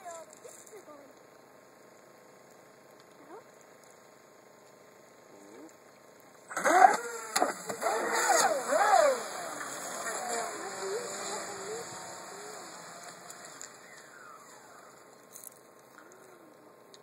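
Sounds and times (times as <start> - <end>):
speedboat motors whining: 6.5 - 15.3.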